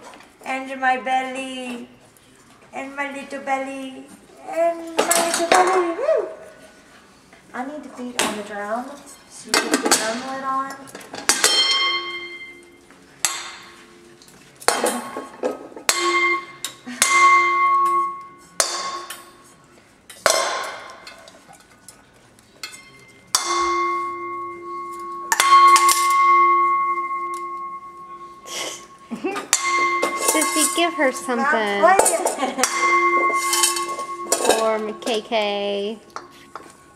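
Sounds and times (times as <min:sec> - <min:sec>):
metal pot and lid banged: 0:25.3 - 0:27.7, 0:29.5 - 0:31.2, 0:31.9 - 0:35.4.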